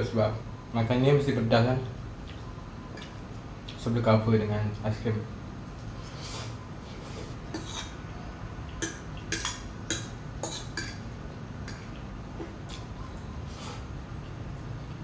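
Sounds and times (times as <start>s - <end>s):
fork clinking against a plate: 7.5s - 8.0s.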